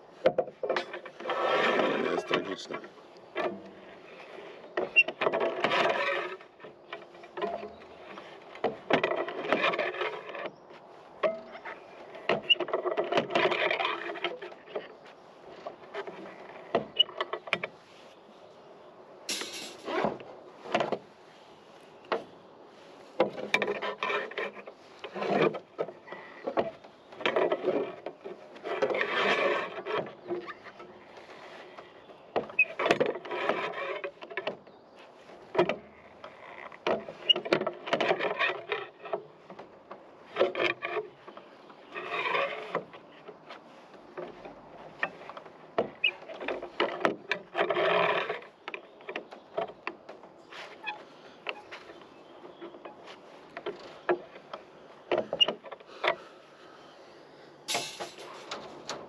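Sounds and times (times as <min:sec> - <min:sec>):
steel bars clicking and knocking: 0:00.1 - 0:10.5, 0:11.2 - 0:17.8, 0:19.3 - 0:21.0, 0:23.1 - 0:56.4, 0:57.7 - 0:59.0
metal scraping and clatter: 0:00.3 - 0:10.5, 0:19.3 - 0:21.0, 0:57.7 - 0:59.0
steel bars grating scrapes: 0:00.6 - 0:10.6, 0:19.3 - 0:20.9, 0:21.6 - 0:34.4, 0:40.2 - 0:49.8, 0:57.6 - 0:59.0.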